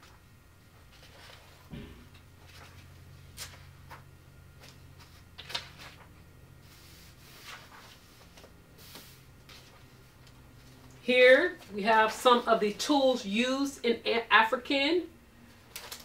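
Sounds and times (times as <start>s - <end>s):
faint low hum: 0.0s - 16.0s
book pages rustling: 0.8s - 1.7s, 2.4s - 11.0s, 15.6s - 16.0s.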